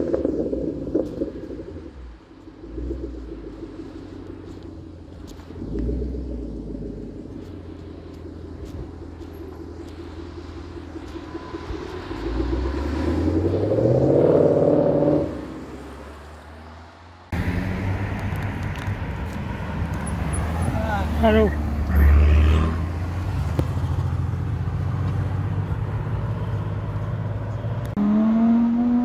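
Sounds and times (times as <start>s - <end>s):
car engine idling and revving: 0.0s - 29.0s
sports car engine approaching: 0.0s - 29.0s
car accelerating hard: 2.6s - 16.7s, 19.9s - 29.0s.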